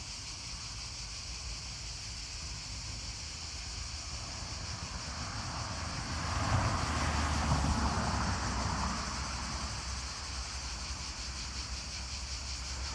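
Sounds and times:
vehicle passing on road: 3.3s - 12.9s.

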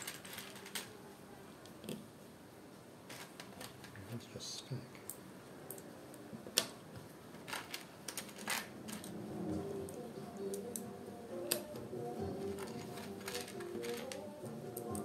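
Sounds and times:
plastic pieces clicking together: 0.0s - 1.0s, 7.4s - 9.1s, 12.4s - 15.0s.

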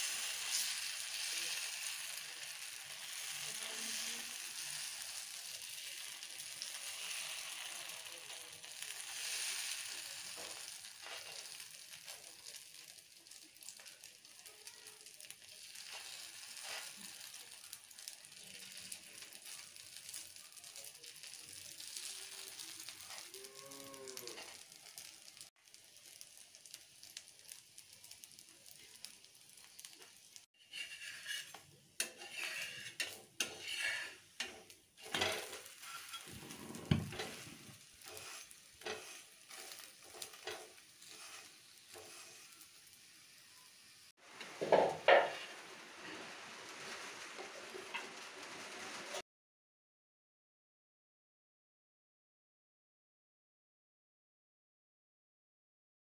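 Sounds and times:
batter sizzling on hot pan: 0.0s - 49.2s
metal spatula scraping pan: 24.3s - 24.6s, 30.6s - 42.9s, 44.4s - 49.2s.

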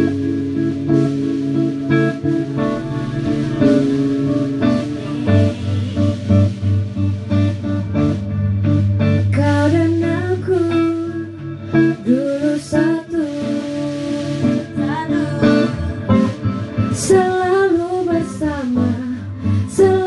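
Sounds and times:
instrumental accompaniment: 0.0s - 20.0s
woman singing into a microphone: 9.2s - 20.0s.

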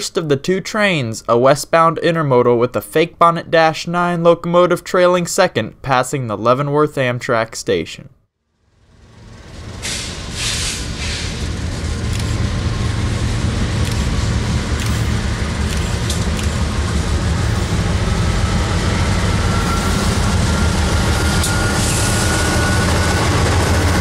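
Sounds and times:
faint whine rising in pitch: 8.5s - 10.7s, 11.3s - 24.0s
locomotive engine rumble: 8.6s - 24.0s.

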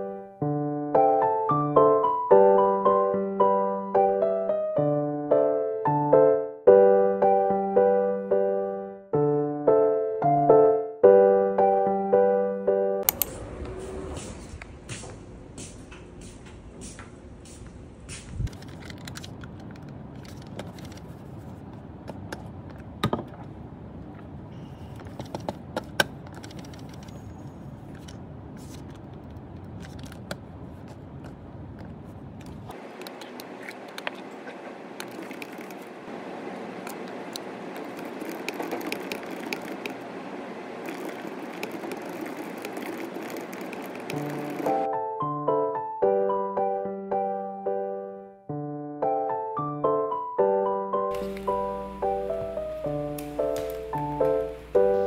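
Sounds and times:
office room noise: 13.1s - 44.9s
laptop keyboard typing: 25.1s - 27.2s, 35.0s - 35.9s, 36.9s - 40.0s, 40.8s - 44.9s.

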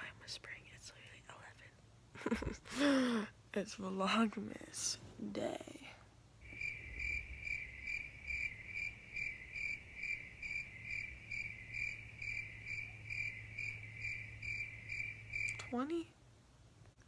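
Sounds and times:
cricket chirping: 6.4s - 15.8s.

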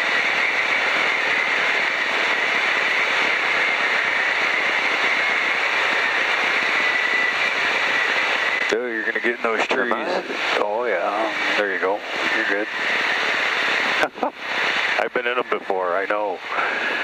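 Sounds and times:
faint high whine: 0.0s - 17.0s
light aircraft engine drone in cabin: 0.0s - 17.0s.

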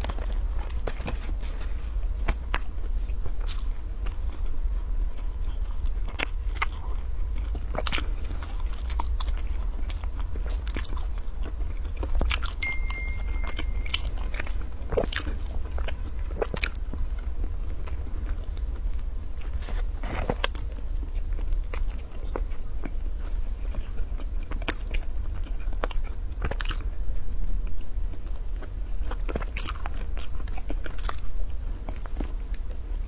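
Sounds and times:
person chewing pastry: 0.0s - 33.0s
steady low hum: 0.0s - 33.0s.

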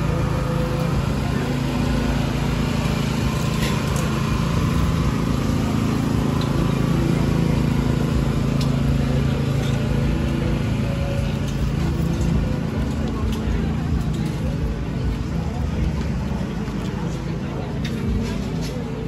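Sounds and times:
engine running steadily: 0.0s - 19.0s.

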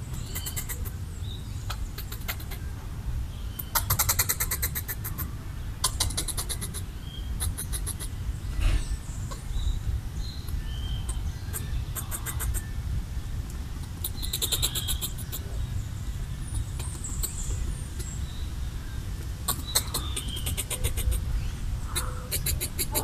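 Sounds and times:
squirrel chattering clicks: 0.1s - 1.0s, 1.7s - 2.6s, 3.6s - 8.1s, 10.5s - 12.7s, 13.8s - 15.5s, 16.5s - 18.2s, 19.2s - 21.3s, 21.9s - 23.0s.

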